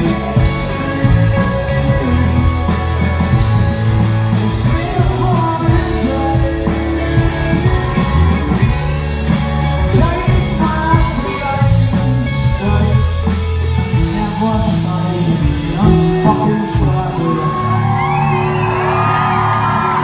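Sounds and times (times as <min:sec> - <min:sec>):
bass guitar: 0:00.0 - 0:20.0
drums: 0:00.0 - 0:20.0
electric guitars: 0:00.0 - 0:20.0
man singing into microphone: 0:04.3 - 0:07.8, 0:09.8 - 0:18.1.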